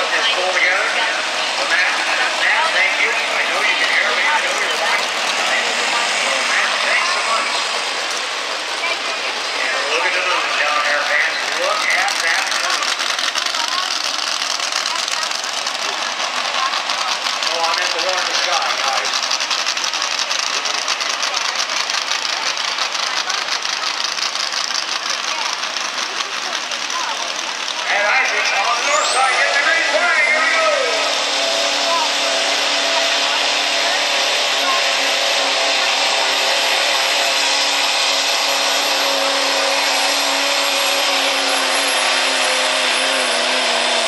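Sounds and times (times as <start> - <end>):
diesel engine idling: 0.0 - 44.0.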